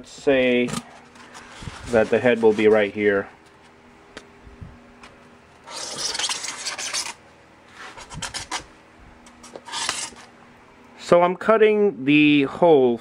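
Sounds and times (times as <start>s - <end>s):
marker scratching on styrofoam: 5.7s - 7.2s, 7.8s - 8.7s, 9.6s - 10.3s.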